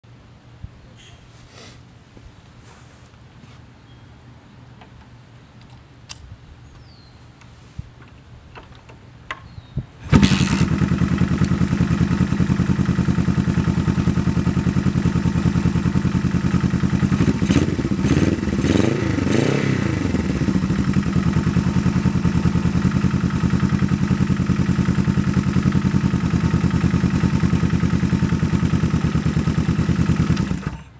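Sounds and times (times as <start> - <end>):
motorcycle engine starting and idling: 10.0 - 30.9.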